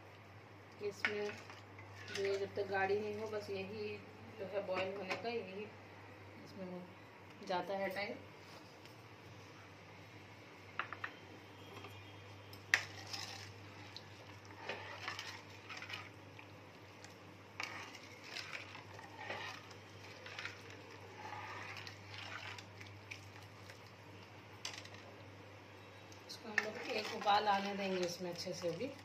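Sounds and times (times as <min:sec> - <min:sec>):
spoon clinking and scraping pot: 0:17.6 - 0:22.7.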